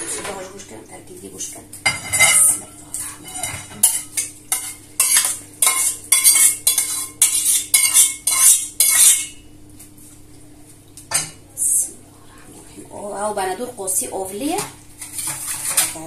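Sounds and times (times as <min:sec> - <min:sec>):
metal spoon scraping metal dishware: 0:01.9 - 0:09.3.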